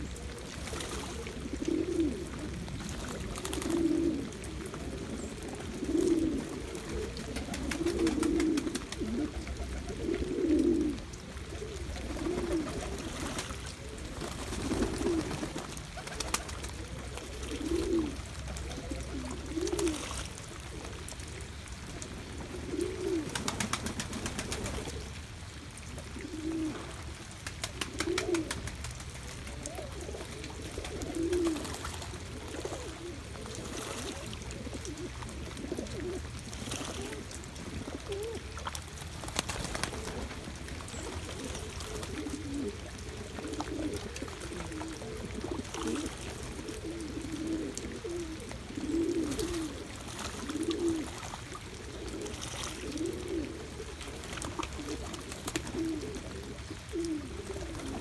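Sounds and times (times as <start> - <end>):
pigeons cooing: 0.0 - 28.8, 29.4 - 58.0
water splashes: 0.0 - 58.0.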